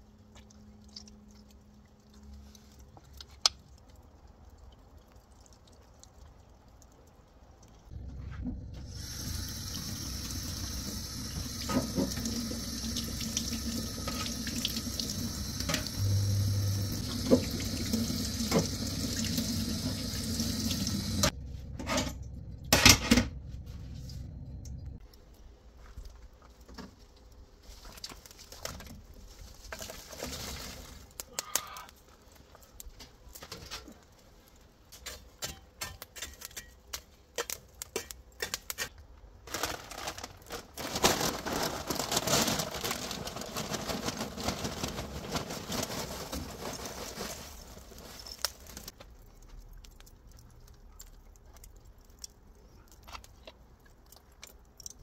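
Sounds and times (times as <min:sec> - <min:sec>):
water running: 0:08.8 - 0:21.3.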